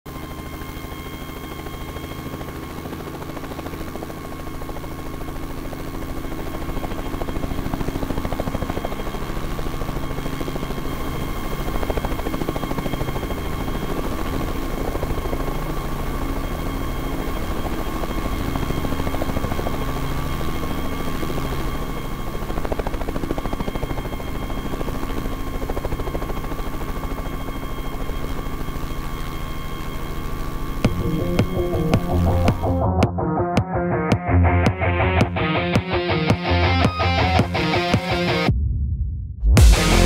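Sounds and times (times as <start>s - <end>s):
helicopter rotor chop: 0.1s - 38.5s
high whine: 26.3s - 38.8s, 39.4s - 40.0s.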